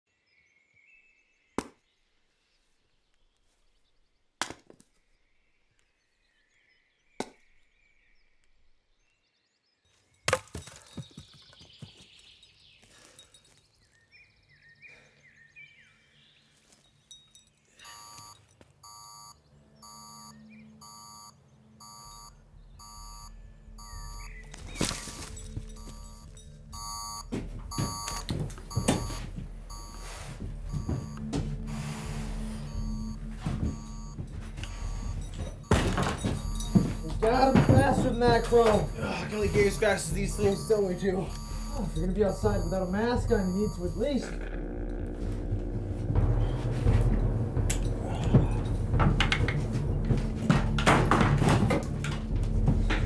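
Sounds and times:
axe chopping firewood: 10.3 - 11.0
electronic beep: 17.8 - 46.5
low drone: 28.6 - 37.7, 38.6 - 53.0.

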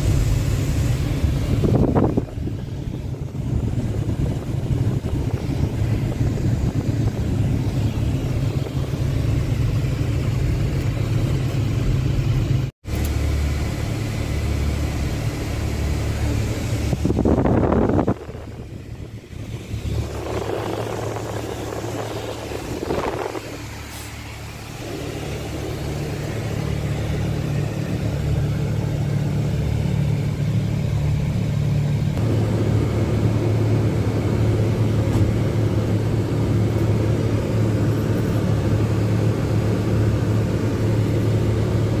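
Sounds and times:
bus engine and road rumble: 0.0 - 42.0.

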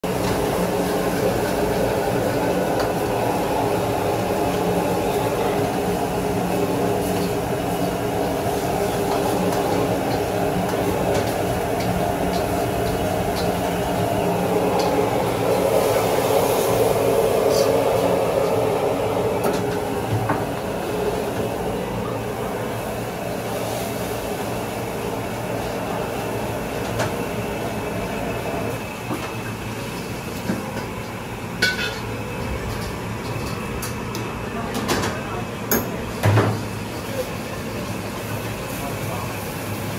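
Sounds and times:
gas burner rushing: 0.0 - 39.9.

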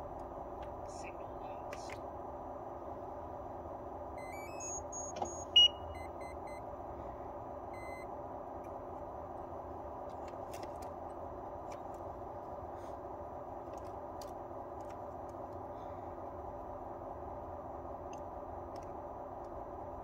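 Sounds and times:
steady electrical hum: 0.0 - 20.0
electronic beeps: 4.2 - 6.6, 7.7 - 8.1
stepped electronic chirps: 4.2 - 6.6, 7.7 - 8.1
click: 18.1 - 19.6.

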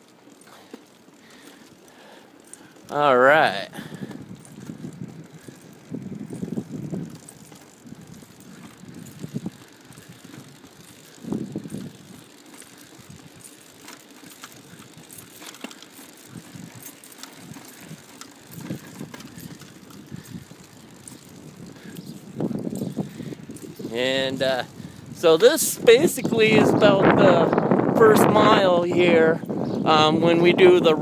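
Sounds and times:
light clicks and rattles: 0.0 - 27.4
bike tyre and wind hiss: 0.0 - 31.0.

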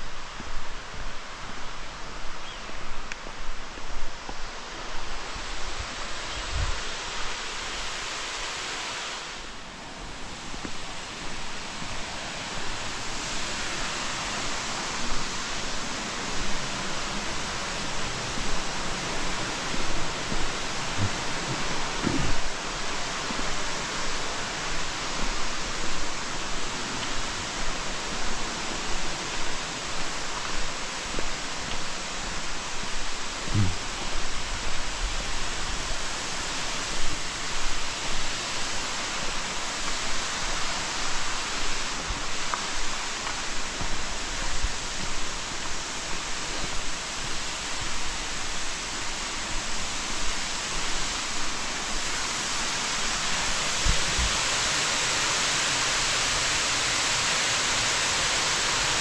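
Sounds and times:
waterfall rushing: 0.0 - 59.0.

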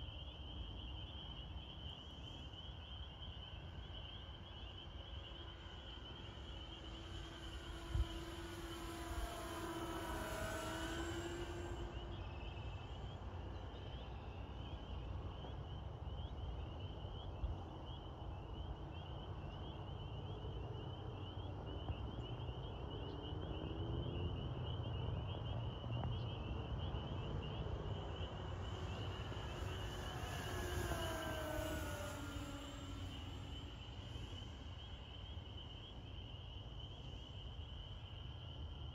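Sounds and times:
model plane motor whine: 0.6 - 15.5, 26.7 - 38.9.

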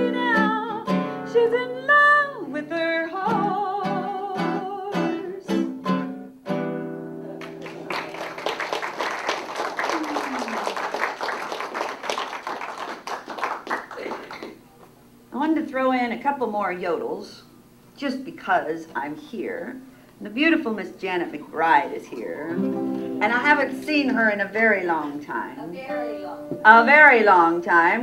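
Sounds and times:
strummed acoustic guitar: 0.0 - 2.0, 3.2 - 7.8, 22.2 - 24.4
audience applauding: 7.4 - 14.6.

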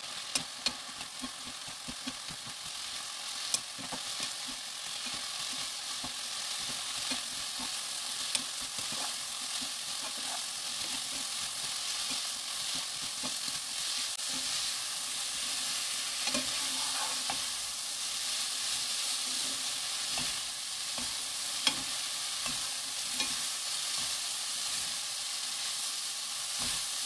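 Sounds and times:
vegetables sizzling in a pan: 0.0 - 27.0
wooden spatulas scraping a pan: 8.8 - 11.4, 16.2 - 17.6.

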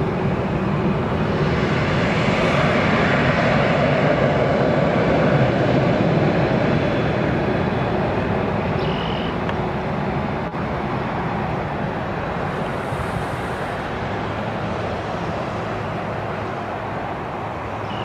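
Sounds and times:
jet engines taxiing: 0.0 - 18.0.

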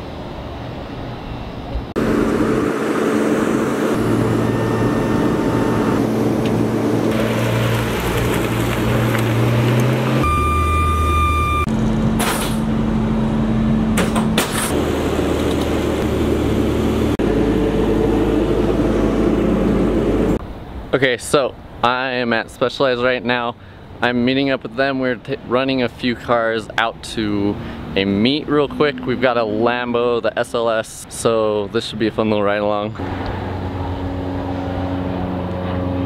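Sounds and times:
steady high tone: 2.0 - 7.1, 28.0 - 30.0
engine and motor hum: 2.0 - 20.4, 33.0 - 36.0.

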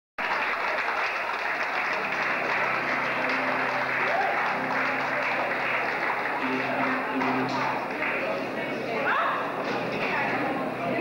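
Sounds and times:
audience applauding: 0.2 - 8.7
music: 1.8 - 11.0.

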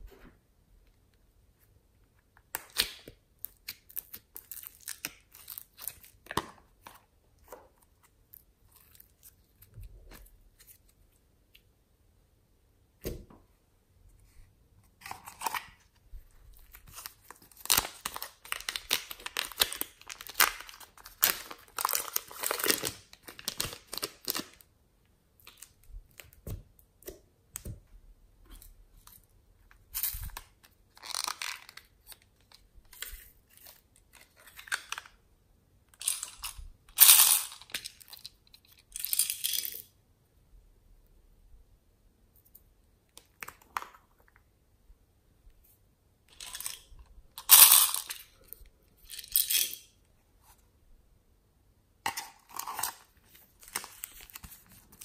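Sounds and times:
plastic pouch crinkling and tearing: 16.6 - 24.6, 30.0 - 33.1, 52.5 - 55.0.

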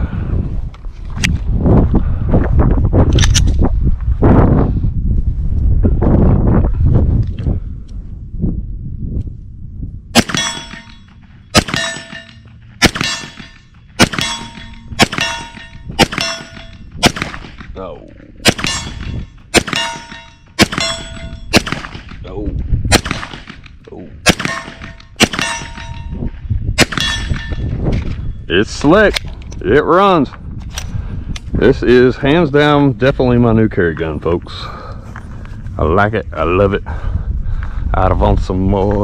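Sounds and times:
steel target plate ringing: 10.2 - 16.9, 18.6 - 21.6, 24.4 - 26.3, 26.9 - 27.7
pistol shots: 10.2 - 17.7, 18.4 - 22.2, 22.9 - 26.1, 26.8 - 27.6.

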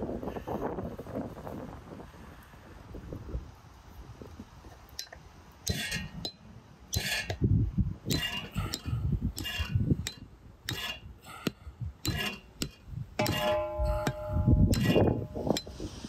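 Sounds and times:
hammer striking knife spine: 5.0 - 7.4, 8.1 - 15.8.

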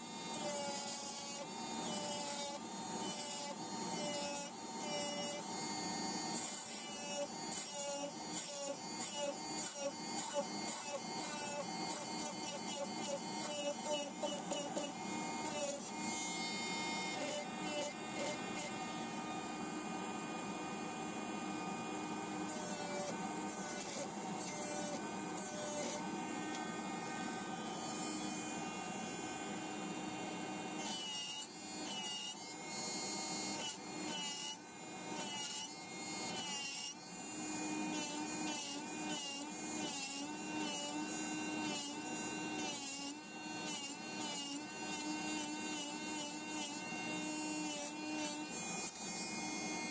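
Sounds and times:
electric nail drill whine: 0.0 - 49.9.

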